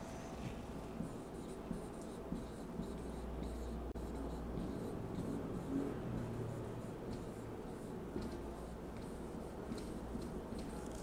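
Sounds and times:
marker pen writing on whiteboard: 0:00.5 - 0:11.0.

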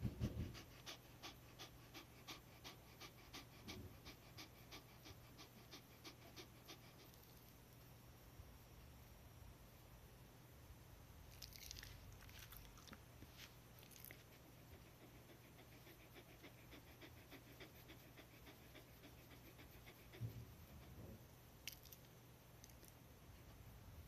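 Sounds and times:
dog panting: 0:00.0 - 0:07.3, 0:14.1 - 0:21.2.

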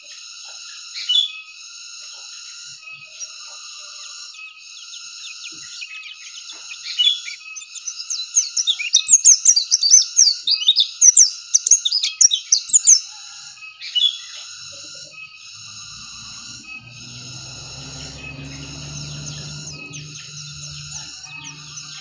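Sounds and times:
bird twittering song: 0:04.4 - 0:13.1, 0:13.7 - 0:22.0
steady high buzz: 0:15.4 - 0:22.0.

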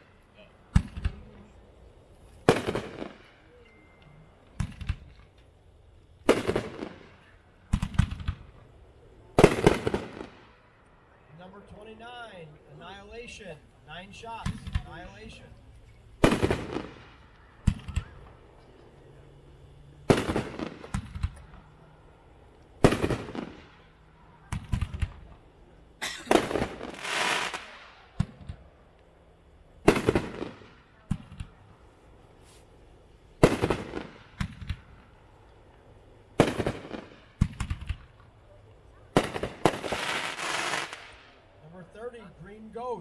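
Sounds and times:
firework hiss: 0:00.0 - 0:03.6, 0:04.2 - 0:10.8, 0:12.7 - 0:28.9, 0:29.6 - 0:38.3, 0:39.1 - 0:41.5
small firework pops: 0:00.7 - 0:01.5, 0:04.5 - 0:05.6, 0:06.2 - 0:08.7, 0:15.8 - 0:19.1, 0:20.0 - 0:21.7, 0:24.5 - 0:25.4, 0:26.3 - 0:29.1, 0:29.8 - 0:31.6, 0:33.4 - 0:35.1, 0:36.4 - 0:41.3
firework cake bangs: 0:02.4 - 0:03.2, 0:09.4 - 0:10.4, 0:16.2 - 0:18.4, 0:20.0 - 0:21.6, 0:22.8 - 0:23.8, 0:29.8 - 0:31.6, 0:33.4 - 0:34.9, 0:36.4 - 0:38.2.

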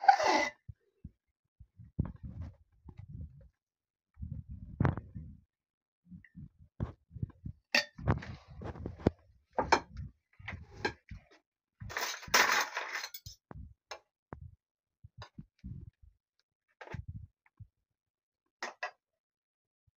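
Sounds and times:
spoon scraping in metal pot: 0:00.0 - 0:00.5.

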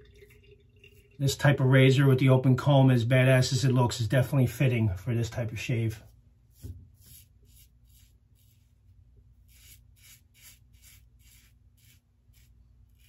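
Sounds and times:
razor scraping stubble: 0:06.5 - 0:13.0.

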